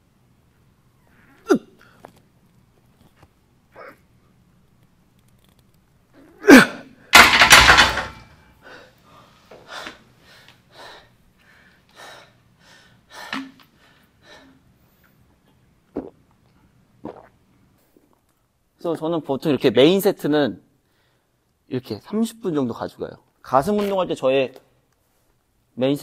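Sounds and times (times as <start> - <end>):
person grunting with strain: 6.2 - 6.9.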